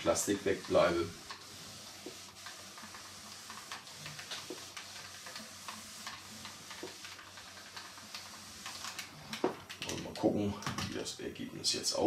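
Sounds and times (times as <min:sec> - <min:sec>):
iron sliding over paper: 0:00.0 - 0:09.6.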